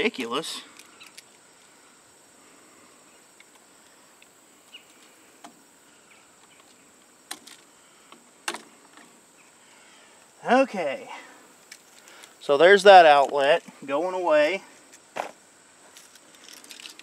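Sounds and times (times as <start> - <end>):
clicks and knocks of wires: 6.4 - 9.1.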